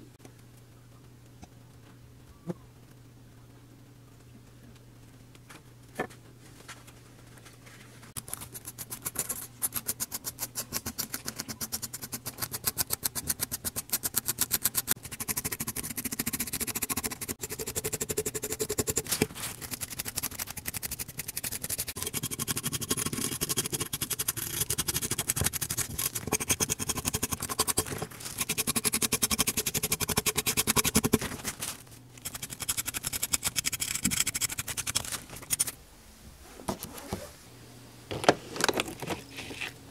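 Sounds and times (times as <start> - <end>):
stiff brush scrubbing metal: 8.2 - 31.6.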